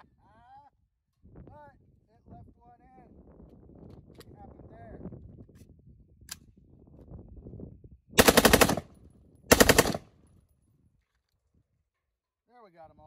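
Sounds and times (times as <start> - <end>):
automatic rifle fire: 8.2 - 8.9, 9.5 - 10.1.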